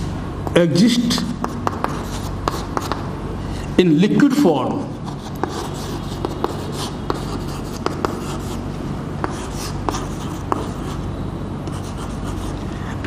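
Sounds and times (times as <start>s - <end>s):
chalk scratching on chalkboard: 1.1s - 3.0s, 4.9s - 8.6s, 9.2s - 11.0s, 11.7s - 13.0s.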